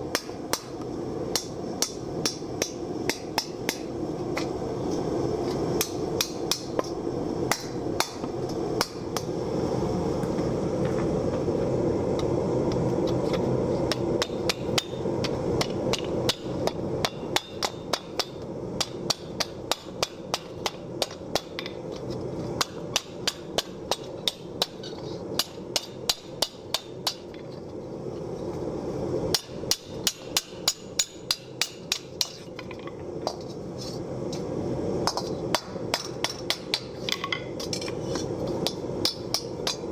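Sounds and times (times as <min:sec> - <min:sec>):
propane forge burner: 0:00.0 - 0:39.9
hammer striking steel: 0:00.1 - 0:03.9, 0:05.8 - 0:09.0, 0:13.9 - 0:21.8, 0:22.6 - 0:27.3, 0:29.3 - 0:32.5, 0:35.1 - 0:38.0.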